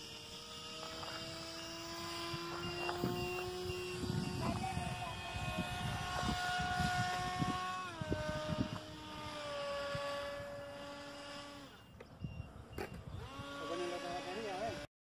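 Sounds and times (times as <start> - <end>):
model plane motor whine: 0.0 - 14.9
wind rumbling on microphone: 2.0 - 13.6.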